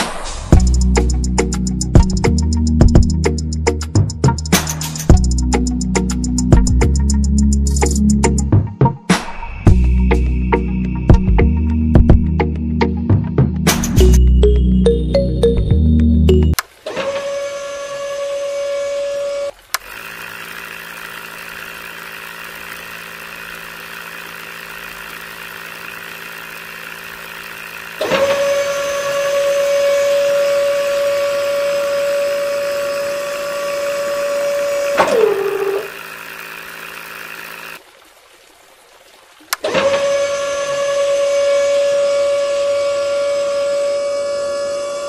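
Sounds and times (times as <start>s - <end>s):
small electric motor whine: 16.8s - 37.8s, 39.6s - 45.0s.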